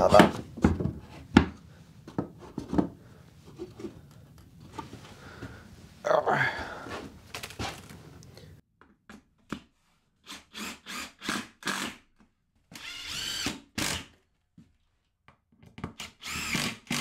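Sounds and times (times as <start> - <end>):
cordless drill driver running: 10.3 - 12.0, 12.8 - 14.1, 16.0 - 17.0.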